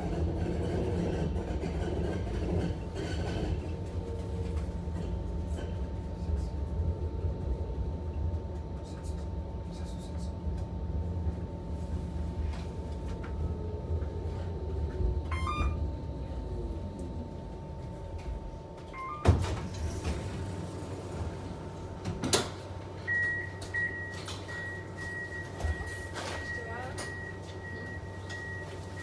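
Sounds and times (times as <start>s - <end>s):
tram rumble: 0.0s - 29.0s
tram doors clunking: 12.4s - 24.5s
high repeating door beep: 15.3s - 15.8s, 19.0s - 19.4s.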